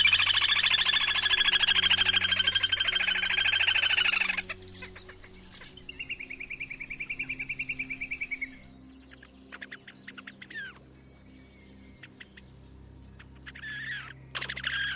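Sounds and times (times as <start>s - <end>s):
grebe trilling call: 0.0s - 4.6s, 13.5s - 14.9s.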